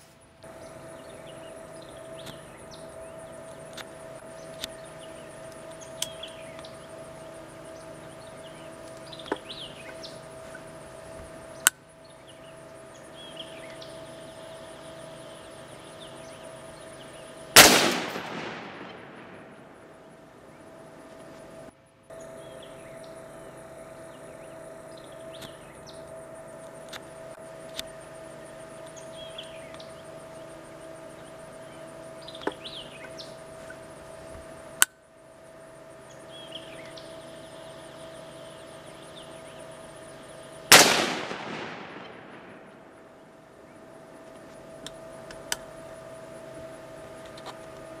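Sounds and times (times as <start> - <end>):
faint steady hum: 0.0 - 48.0
rifle shot: 17.6 - 20.0, 40.7 - 43.1.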